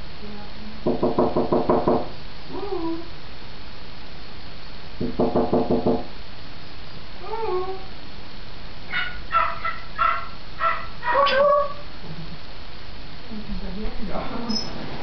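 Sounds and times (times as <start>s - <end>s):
parrot calling: 8.8s - 12.0s, 14.4s - 14.9s.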